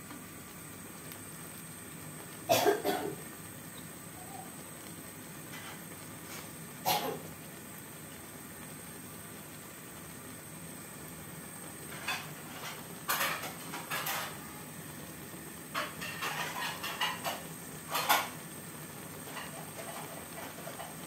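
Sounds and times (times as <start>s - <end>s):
simmering pan hiss: 0.0s - 21.0s.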